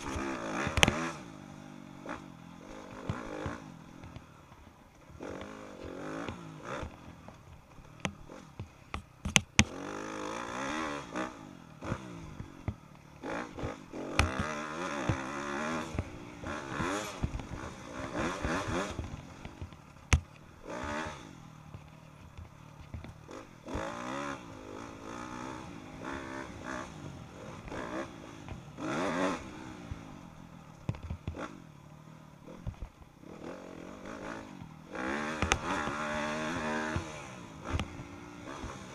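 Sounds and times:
motocross bike engine revving: 0.0 - 38.9
bike knocks and clatter: 6.2 - 9.8, 13.6 - 21.0, 30.8 - 31.6.

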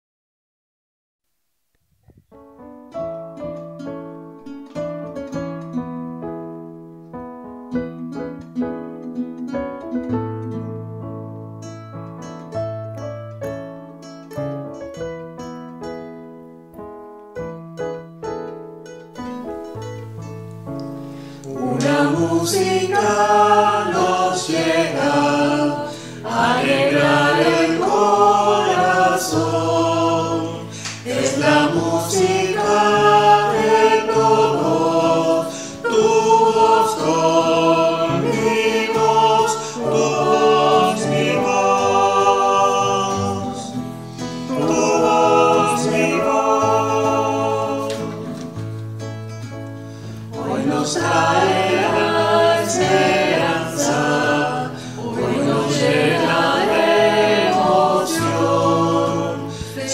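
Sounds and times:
acoustic guitar: 2.0 - 59.9
piano: 2.0 - 59.9
mixed choir singing: 21.4 - 48.7, 50.3 - 59.9.

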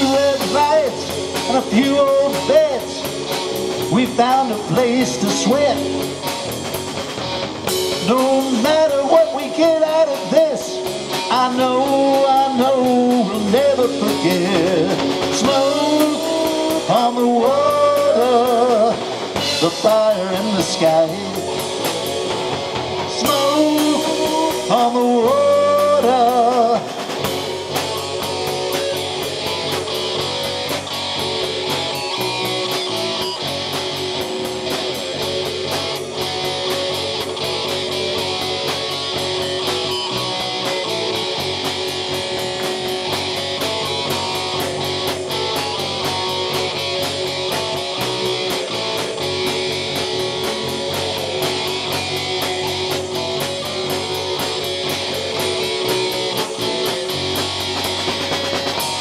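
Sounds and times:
bass: 0.0 - 59.0
drums and cymbal beat: 0.0 - 59.0
electric guitar: 0.0 - 59.0
keyboards: 0.0 - 59.0.

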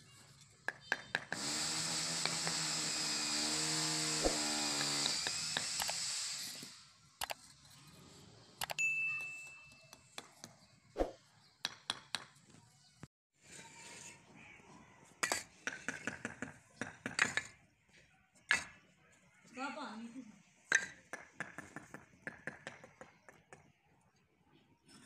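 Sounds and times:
ringing ding: 8.8 - 10.0
hammer tapping bricks: 11.6 - 12.4, 20.7 - 23.7.

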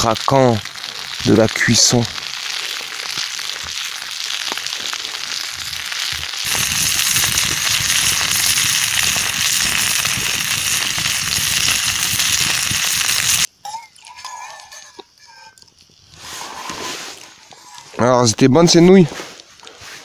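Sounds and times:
sausages sizzling in a pan: 0.0 - 19.8
wood fire crackling: 0.0 - 20.0.

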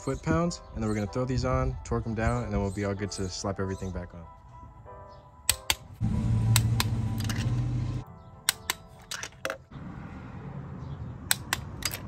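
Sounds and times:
background music: 0.0 - 9.7
torque wrench clicks: 5.5 - 5.9.

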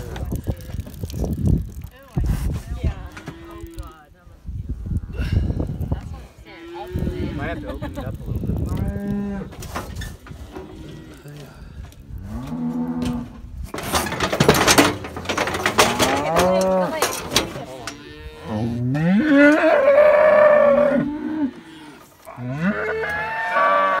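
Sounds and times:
cow mooing: 3.0 - 4.0, 6.5 - 7.7, 12.2 - 13.4, 15.8 - 24.0.

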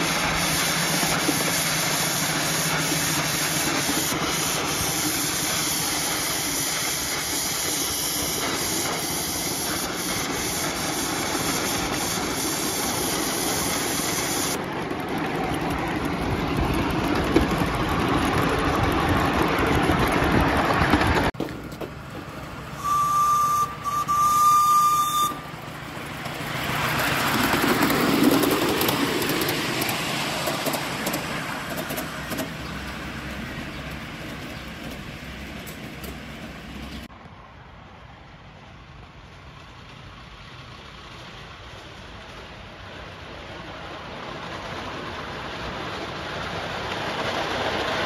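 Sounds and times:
steam hissing: 0.0 - 14.6, 22.6 - 37.1
miniature train running past: 0.0 - 48.0
steam whistle blasts: 22.8 - 25.5.

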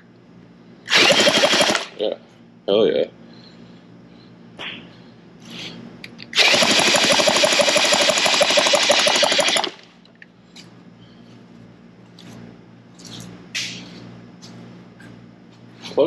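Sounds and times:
small gasoline engine chugging: 0.9 - 1.9, 6.4 - 9.9.

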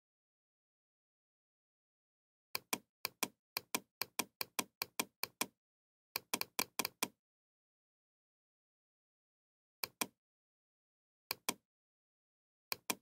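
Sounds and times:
mouse button clicking rapidly: 2.6 - 5.6, 6.2 - 7.2, 12.7 - 13.0.

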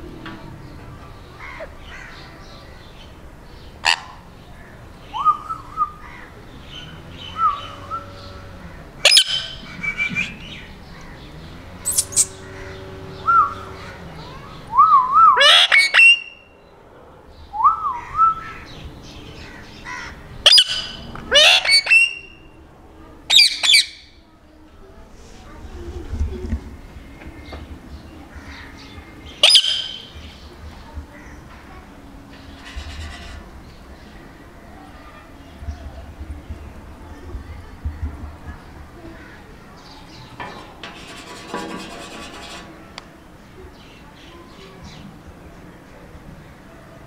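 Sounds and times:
parrot screeching: 15.4 - 16.3, 20.5 - 22.2.

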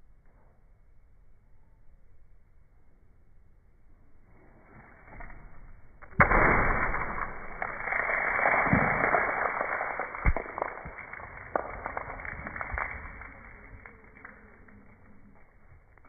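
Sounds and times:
water balloon bursting: 6.0 - 14.8
water splashing: 6.2 - 15.2.

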